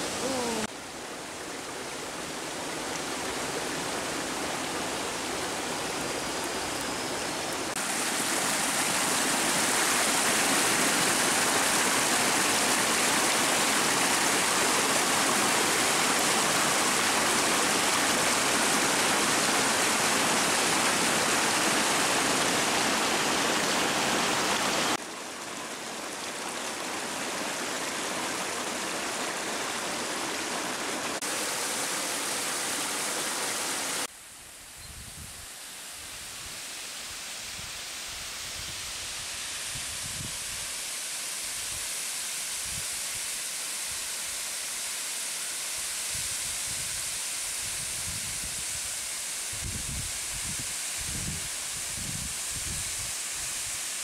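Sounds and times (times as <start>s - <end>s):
waterfall roaring: 0.0s - 34.1s.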